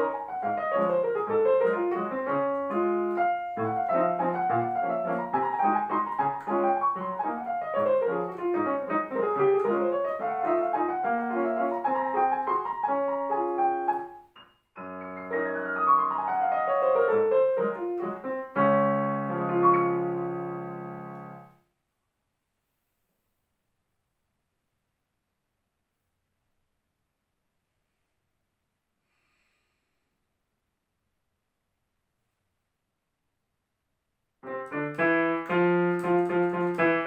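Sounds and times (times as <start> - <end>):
digital piano playing fast: 0.0 - 21.6, 34.4 - 37.0.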